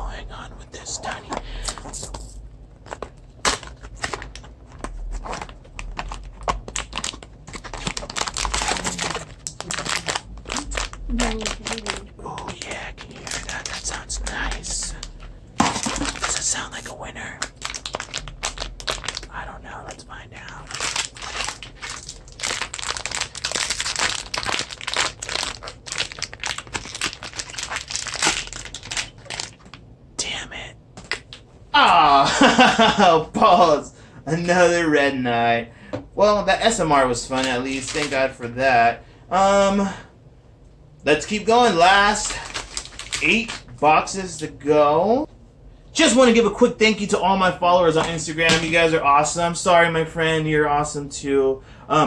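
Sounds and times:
foil bag crinkling: 2.8 - 19.5, 20.4 - 29.7, 37.3 - 38.2, 42.0 - 43.6.

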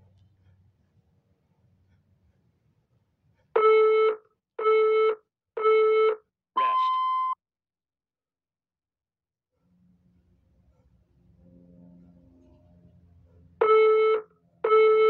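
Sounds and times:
long high-pitched beep: 3.6 - 7.4.

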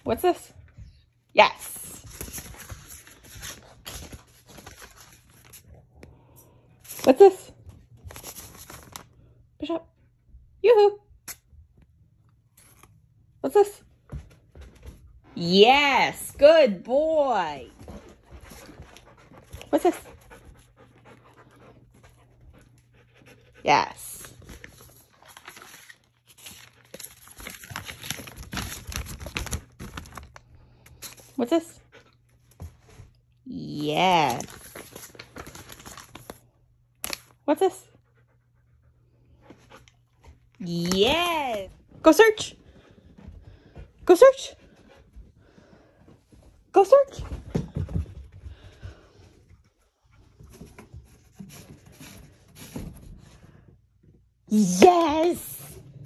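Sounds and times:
rustling and crinkling: 2.0 - 5.9, 6.8 - 9.2, 24.3 - 31.4.

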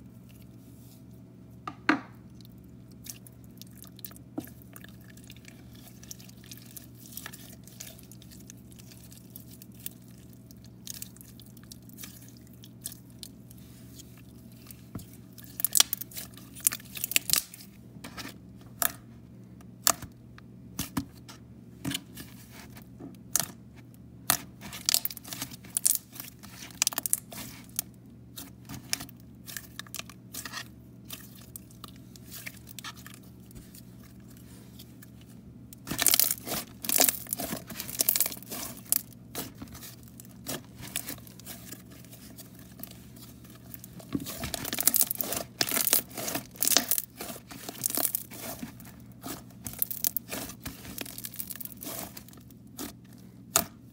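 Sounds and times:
slime squished by hand: 24.2 - 53.9.

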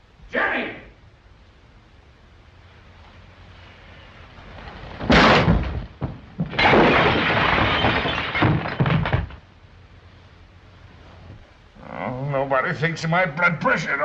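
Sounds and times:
chair toppling: 4.4 - 6.8
man falling into furniture: 4.5 - 9.4
dishes and glass breaking: 6.5 - 9.4.

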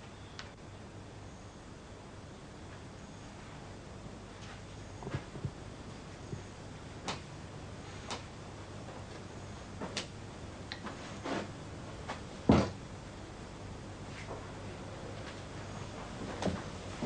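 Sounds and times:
dull thump: 12.5 - 12.8.

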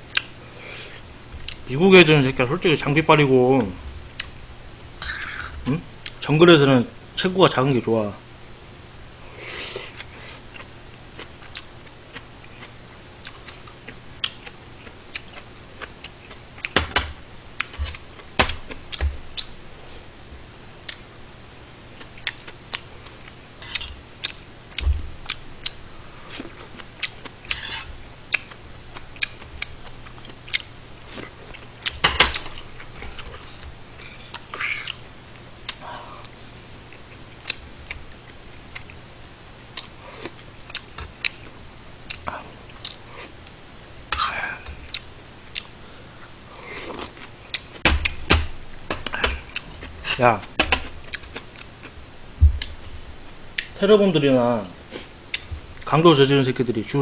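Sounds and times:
chewing: 9.6 - 16.8, 22.0 - 35.0, 39.7 - 43.4, 44.1 - 45.7, 48.9 - 52.0.

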